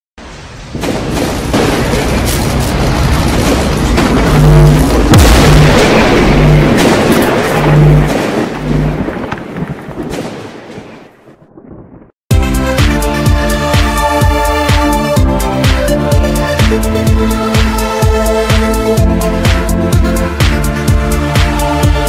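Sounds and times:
booming hits: 0.2s - 11.0s
dense rumble: 0.2s - 22.0s
low pulsing tone: 4.0s - 9.1s.

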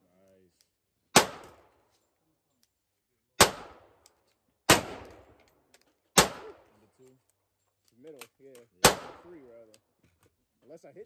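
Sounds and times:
gunshots echoing: 1.1s - 1.7s, 3.4s - 4.0s, 4.6s - 5.4s, 6.1s - 6.7s, 8.8s - 9.4s.

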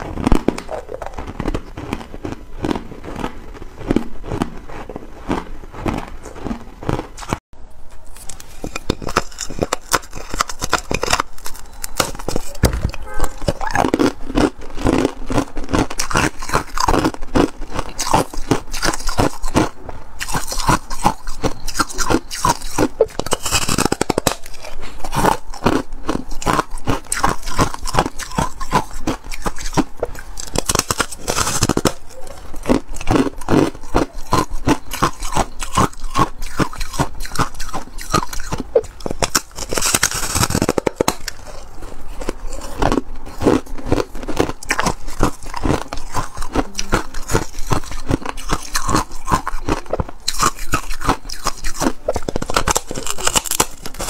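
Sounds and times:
ice crunching while chewed: 0.0s - 54.0s.

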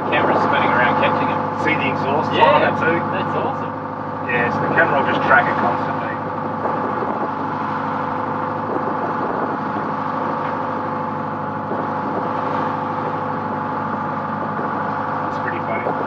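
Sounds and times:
boat engine humming: 0.0s - 16.0s.

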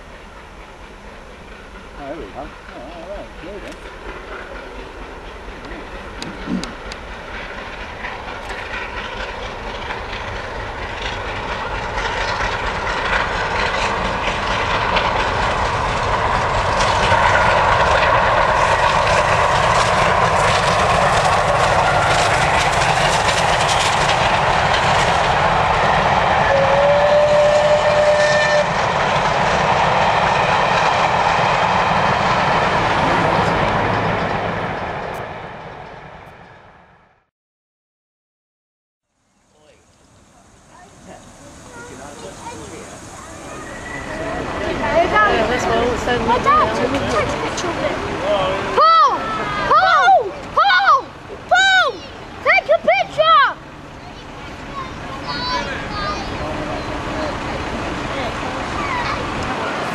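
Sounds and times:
steam locomotive passing: 0.0s - 37.2s, 39.4s - 59.9s
coaches clattering over rail joints: 0.2s - 26.4s, 41.3s - 59.9s.

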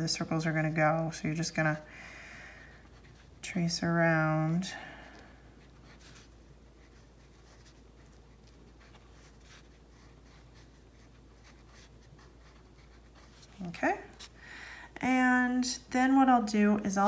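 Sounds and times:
crayon scratching on paper: 5.6s - 14.3s.

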